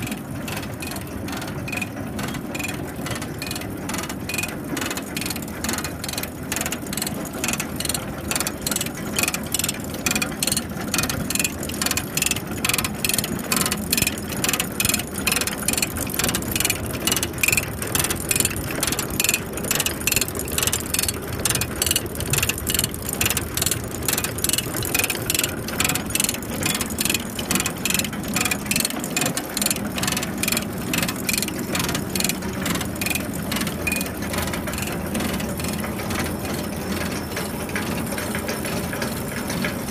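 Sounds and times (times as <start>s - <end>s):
drive mechanism clicking: 0.0s - 36.3s.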